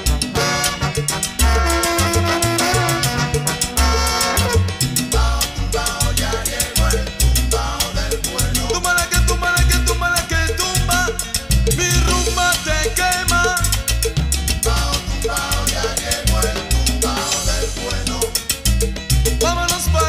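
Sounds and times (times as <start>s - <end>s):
salsa music: 0.0s - 20.0s.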